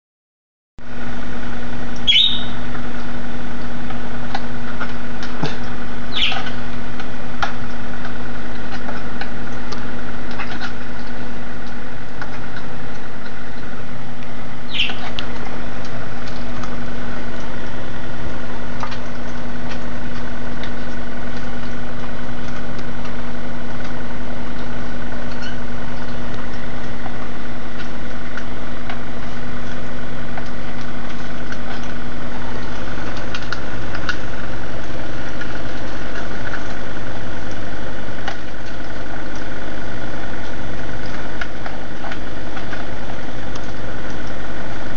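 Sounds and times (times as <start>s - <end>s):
humidifier humming: 0.8s - 44.9s
bird chirping: 2.0s - 2.6s, 6.1s - 6.6s, 14.7s - 15.2s.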